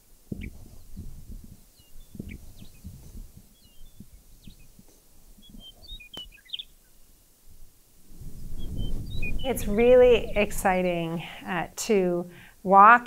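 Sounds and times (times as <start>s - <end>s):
low thumps and rumbles: 0.3s - 4.8s
bird chirps: 0.3s - 7.0s, 8.5s - 10.5s.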